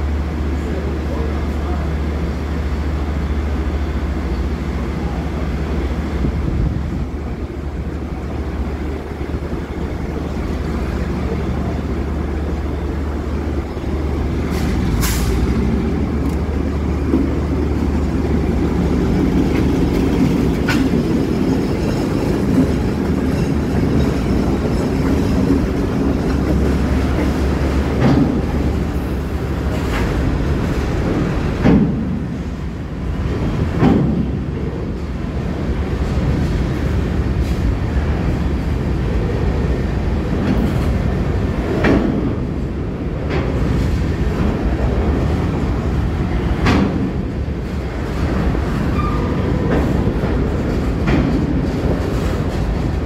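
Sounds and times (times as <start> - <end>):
diesel locomotive engine: 0.0 - 53.0
freight car wheels rumbling: 0.0 - 53.0.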